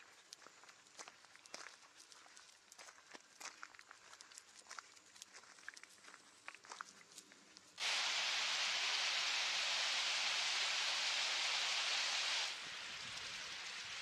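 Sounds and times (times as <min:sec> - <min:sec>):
stream rushing over rocks: 0:07.8 - 0:14.0.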